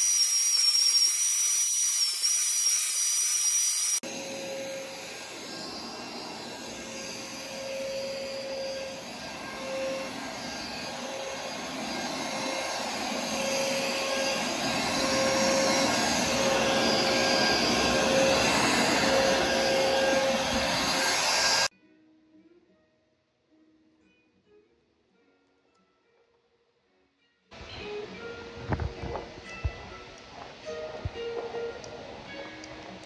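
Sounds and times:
vacuum cleaner running: 0.0 - 21.7.

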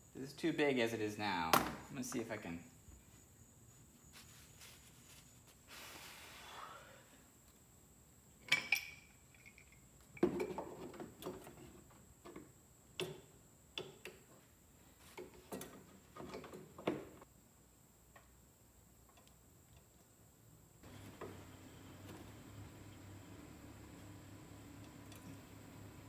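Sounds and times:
metal hand tools clinking: 8.5 - 9.9.

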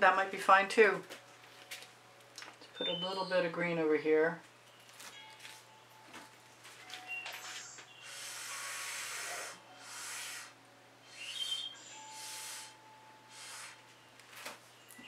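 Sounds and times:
puffs of breath blowing: 8.0 - 13.9.

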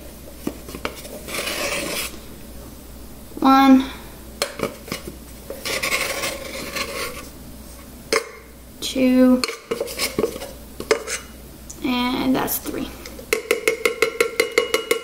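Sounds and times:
metal cup scraping in canister: 5.6 - 7.2.

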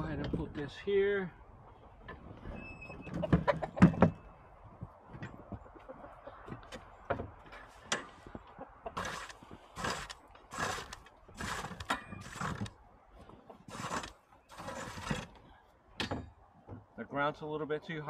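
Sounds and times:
rake scraping through straw: 9.0 - 12.7, 13.7 - 15.4.

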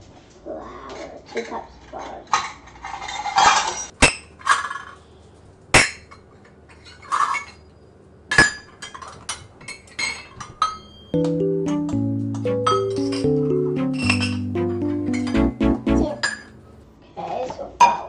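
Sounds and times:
music: 11.0 - 16.7.

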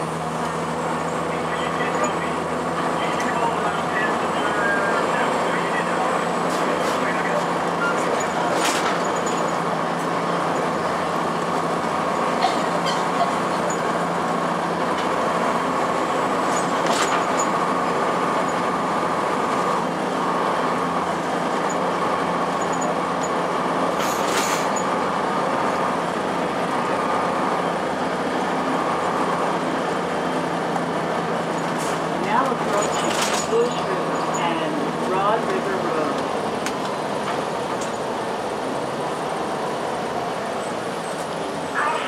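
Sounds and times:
bus diesel engine running: 0.0 - 42.0
road noise: 0.0 - 42.0.

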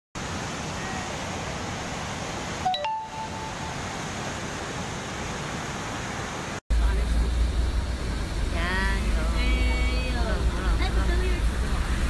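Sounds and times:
floodwater rushing: 0.2 - 12.0
ding-like chime: 2.7 - 3.8.

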